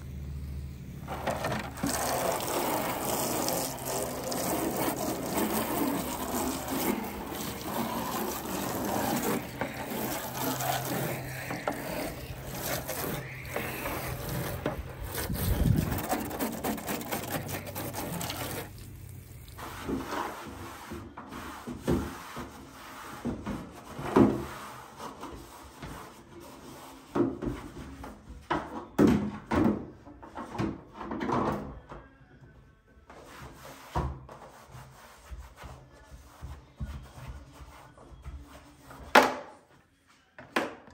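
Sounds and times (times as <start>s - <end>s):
hose water spraying on plastic: 1.0s - 23.2s.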